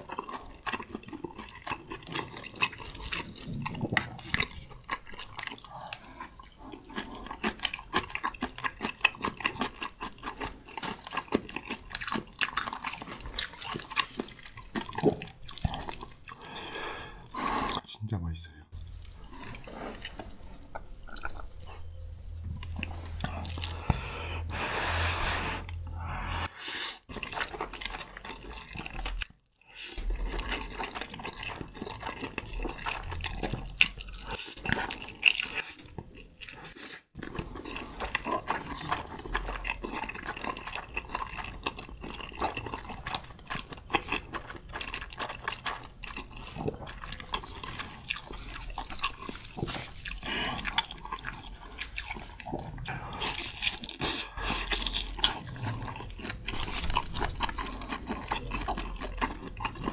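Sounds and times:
wet chewing: 0.0 - 17.8, 18.8 - 24.6, 27.0 - 59.9
slurping noodles: 23.1 - 29.0.

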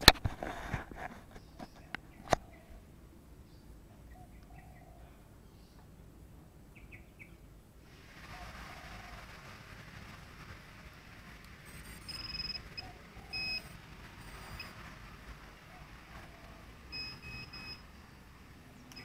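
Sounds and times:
faint bird chirps: 3.4 - 5.9
steady hiss: 5.1 - 19.0.

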